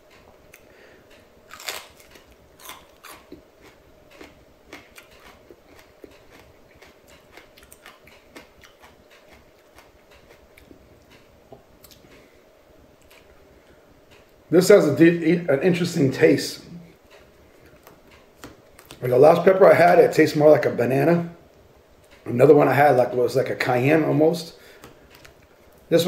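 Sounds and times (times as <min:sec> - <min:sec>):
person chewing crunchily: 0:01.4 - 0:11.2.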